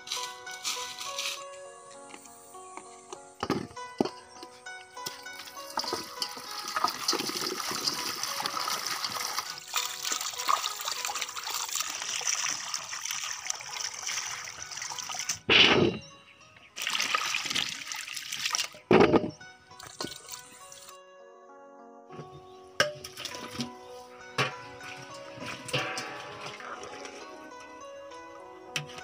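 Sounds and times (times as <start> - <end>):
hands rubbing and rinsing fruit: 5.2 - 15.4
water pouring into steel basin: 5.4 - 15.5, 16.8 - 18.8, 19.8 - 20.9, 24.7 - 27.6.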